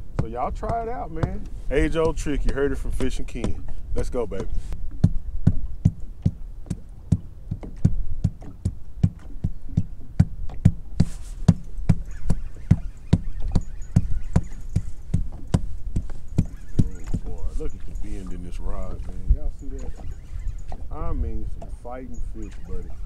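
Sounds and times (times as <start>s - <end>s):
foot patting on boat floor: 4.3s - 12.4s, 13.1s - 17.4s.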